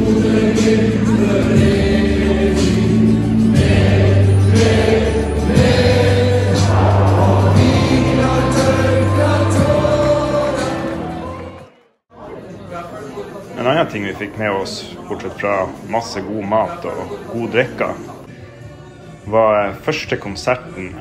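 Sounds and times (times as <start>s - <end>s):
held music chords: 0.0s - 11.6s
choir-like singing: 0.0s - 12.0s.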